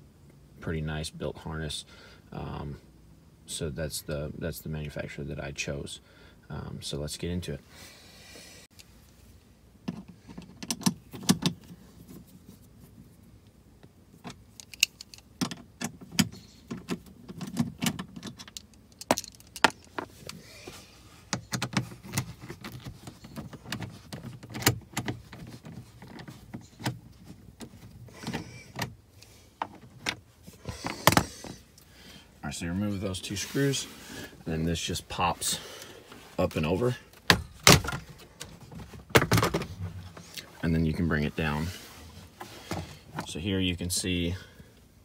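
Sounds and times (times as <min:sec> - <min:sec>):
rustling and bumping of handling: 0:08.8 - 0:44.4.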